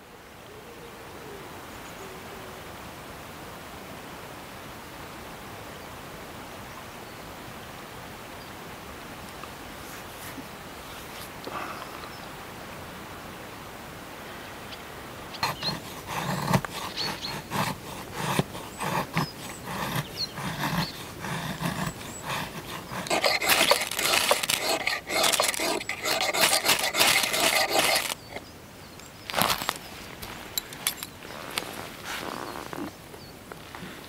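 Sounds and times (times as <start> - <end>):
ferro rod scraping: 15.4 - 28.4
knife carving wood: 15.4 - 28.4.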